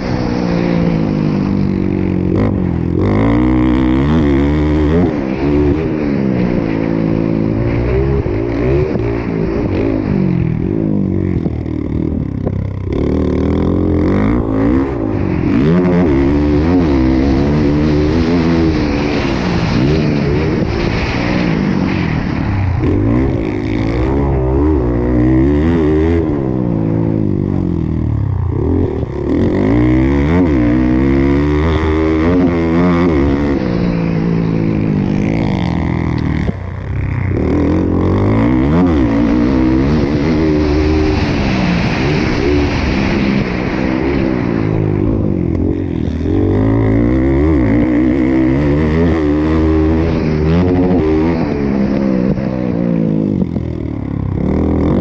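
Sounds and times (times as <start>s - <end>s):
motocross engine revving: 0.0s - 55.0s.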